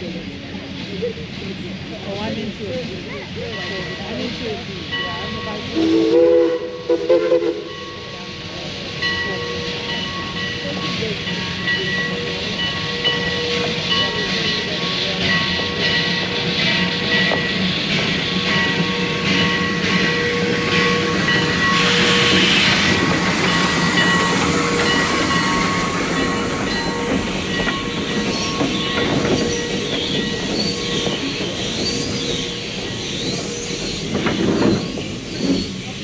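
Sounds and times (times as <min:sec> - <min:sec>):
steam hiss: 0:03.8 - 0:36.0
train cars clattering over rails: 0:07.7 - 0:36.0.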